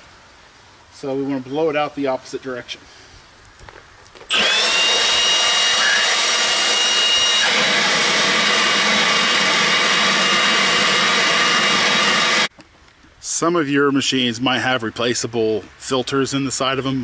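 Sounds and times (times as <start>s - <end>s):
leaf blower running: 4.3s - 12.5s.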